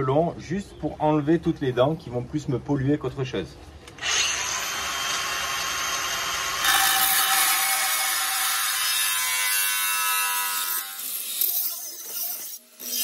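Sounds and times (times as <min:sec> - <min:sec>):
angle grinder cutting steel: 0:04.0 - 0:13.0.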